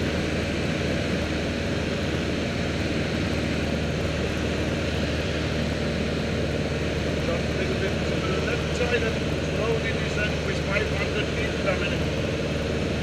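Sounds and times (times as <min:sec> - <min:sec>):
plane engine and propeller droning: 0:00.0 - 0:13.0.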